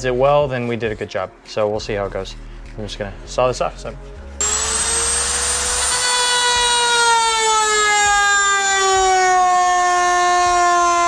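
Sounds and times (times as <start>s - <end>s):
rotary tool cutting plastic: 4.4s - 8.2s.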